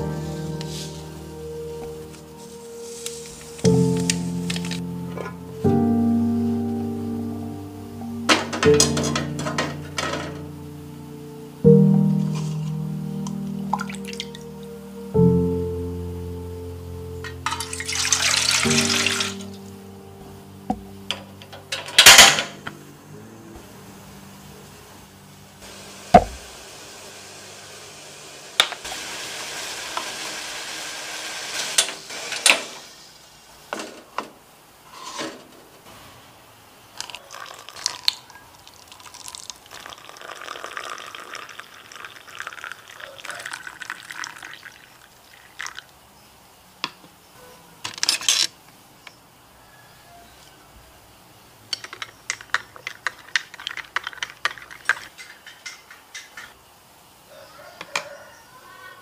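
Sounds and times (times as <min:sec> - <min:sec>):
water pouring into a glass: 0:17.5 - 0:19.5, 0:37.0 - 0:45.9.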